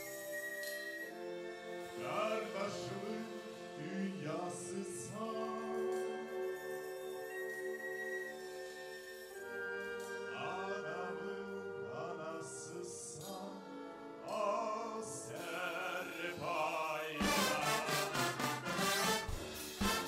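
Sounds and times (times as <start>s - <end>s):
wind band playing chords: 1.0s - 15.4s, 17.1s - 20.0s
man singing with vibrato: 2.0s - 6.5s, 10.1s - 13.6s, 14.2s - 18.9s.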